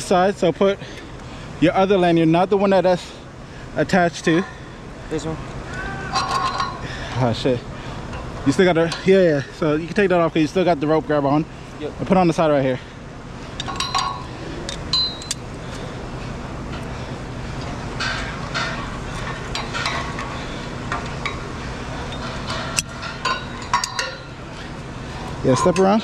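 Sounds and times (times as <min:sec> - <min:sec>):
steady low hum: 0:00.0 - 0:26.0
metal climbing hardware clinking: 0:06.2 - 0:06.8, 0:13.6 - 0:15.5, 0:22.0 - 0:24.4, 0:25.4 - 0:26.0.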